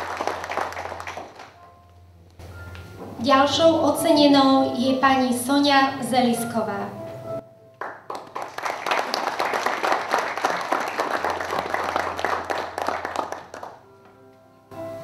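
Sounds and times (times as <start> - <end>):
audience applauding: 0.0 - 1.6, 7.8 - 13.8.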